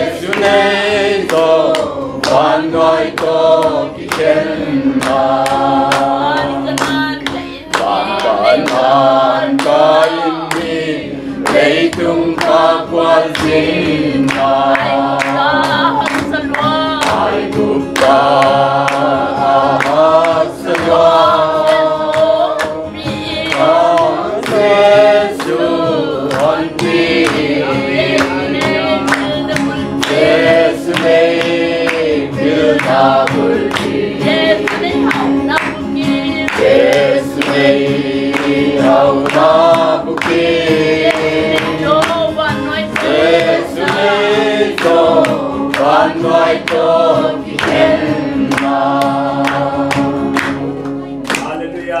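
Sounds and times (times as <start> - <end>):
group singing a gospel hymn: 0.0 - 52.0
hand clapping: 0.0 - 52.0.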